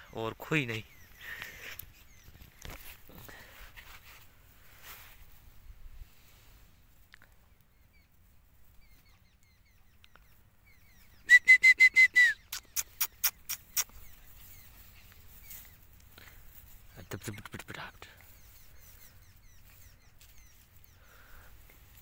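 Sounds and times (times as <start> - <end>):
short whistled chirps: 10.9 - 14.7
sharp clicks: 12.5 - 14.0.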